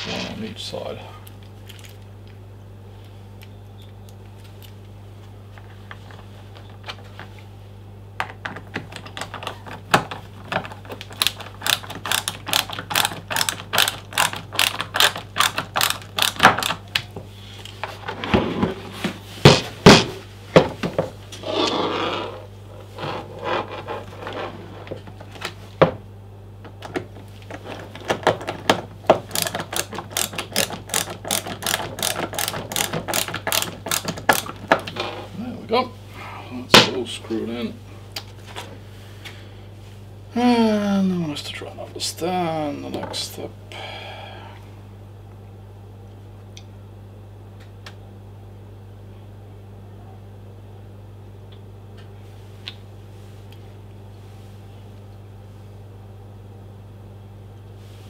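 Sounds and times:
ratcheting screwdriver clicking: 0:11.2 - 0:16.8, 0:29.3 - 0:34.5.

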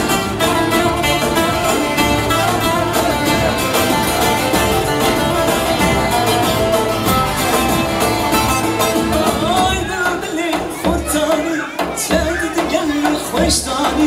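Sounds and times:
dance music with plucked strings: 0:00.0 - 0:11.1.

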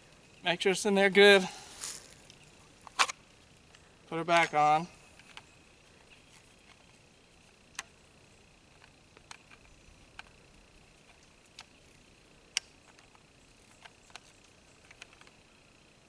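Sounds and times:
faint high hiss: 0:00.0 - 0:16.0.

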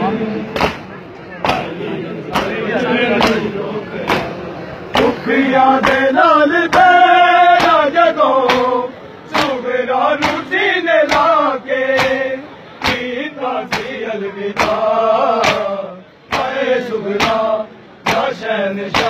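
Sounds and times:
men slapping their chests: 0:00.6 - 0:01.7, 0:02.3 - 0:04.4, 0:05.8 - 0:06.1, 0:07.6 - 0:09.6, 0:10.2 - 0:10.5, 0:11.1 - 0:13.1, 0:13.7 - 0:14.0, 0:14.6 - 0:16.6, 0:17.2 - 0:19.0
men chanting a lament: 0:01.4 - 0:19.0.

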